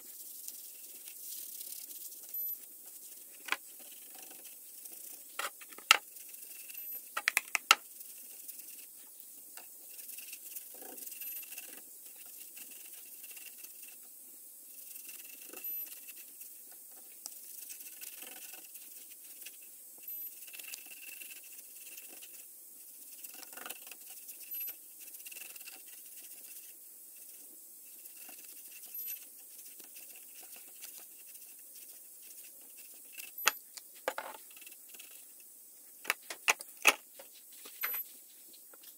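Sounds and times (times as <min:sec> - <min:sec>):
scratchy rubbing on wood: 0:00.1 - 0:07.0, 0:07.8 - 0:09.0, 0:09.8 - 0:14.0, 0:14.7 - 0:16.5, 0:17.3 - 0:19.6, 0:20.2 - 0:33.4
sharp clicks and knocks: 0:07.2 - 0:07.8.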